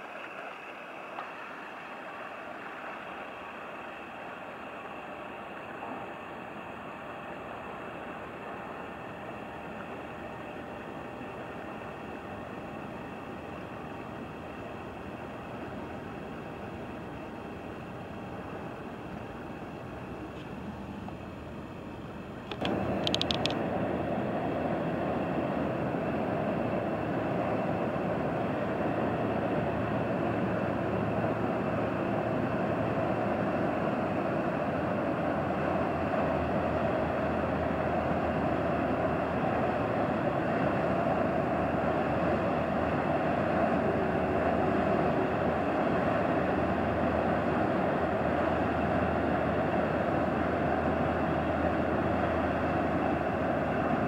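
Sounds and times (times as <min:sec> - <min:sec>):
water rushing at bow wave: 0:00.0 - 0:20.0, 0:22.5 - 0:54.0
ship diesel engine rumbling: 0:00.0 - 0:54.0.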